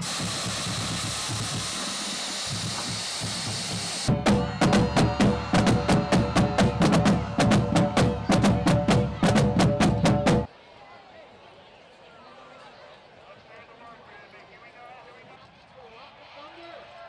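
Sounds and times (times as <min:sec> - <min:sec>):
steady hissing rush: 0:00.0 - 0:08.4
marching drumline cadence: 0:00.0 - 0:10.5.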